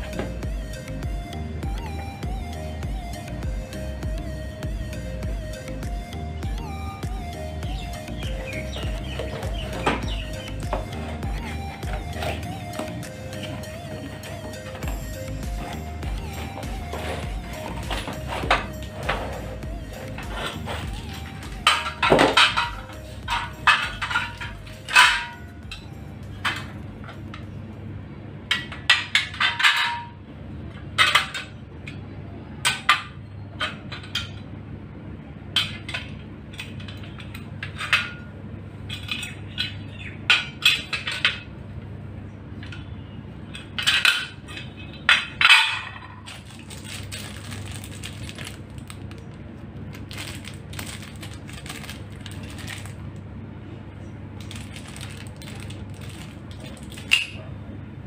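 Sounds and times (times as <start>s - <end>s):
steady low hum: 0.0s - 58.0s
metal brackets clanking: 7.6s - 27.5s, 42.6s - 46.9s.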